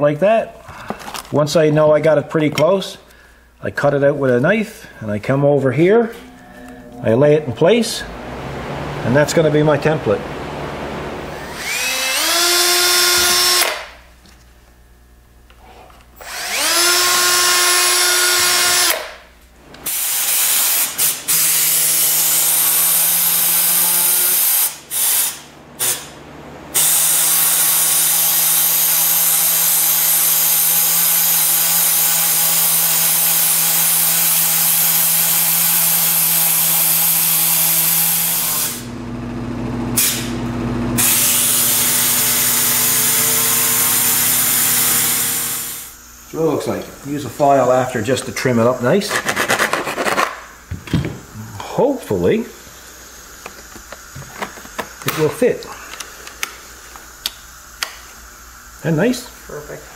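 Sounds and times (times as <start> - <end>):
air-powered rotary tool cutting: 8.1 - 14.0, 16.2 - 19.2, 19.8 - 38.9, 41.0 - 48.0
cordless drill whining: 11.3 - 13.9, 16.2 - 19.1, 41.0 - 46.0.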